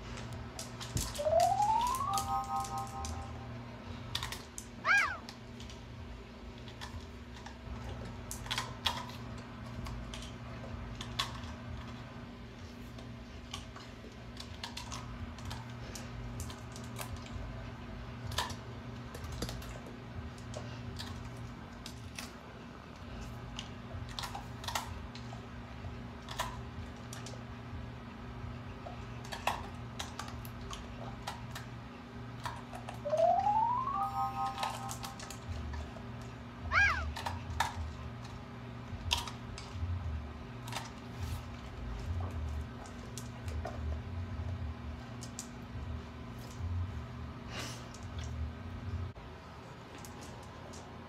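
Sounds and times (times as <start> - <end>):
low hum: 0.5 - 4.5, 32.4 - 37.8
swooping pitched tone: 1.1 - 3.5, 33.0 - 35.3
dog crunching celery: 6.6 - 17.6, 18.2 - 22.4, 23.0 - 25.6, 26.2 - 27.4, 28.8 - 31.8, 37.0 - 40.0, 40.6 - 45.5.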